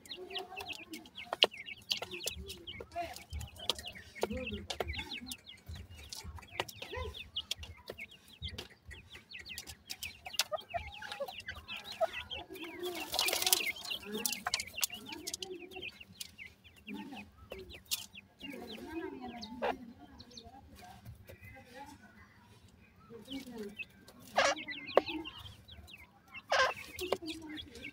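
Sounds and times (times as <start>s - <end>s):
chicks peeping: 0.0s - 27.9s
bird clucking softly: 26.4s - 27.2s.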